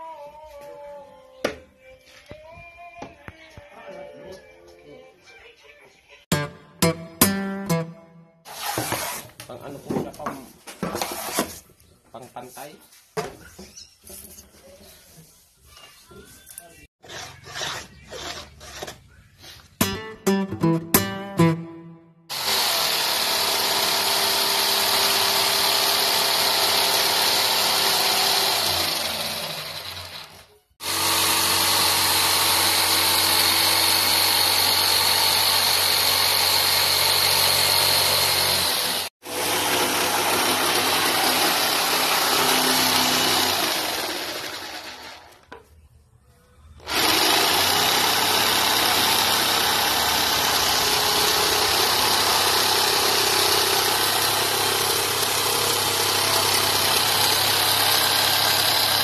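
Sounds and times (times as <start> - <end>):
jigsaw sawing wood: 8.5 - 9.5, 10.9 - 11.5, 22.3 - 45.5, 46.8 - 59.0.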